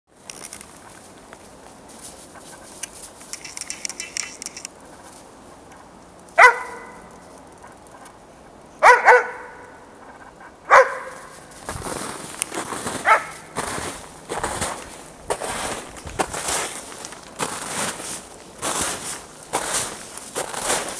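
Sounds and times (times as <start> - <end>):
dog barking: 6.4 - 7.1, 8.8 - 9.8, 10.7 - 11.4, 13.0 - 13.5.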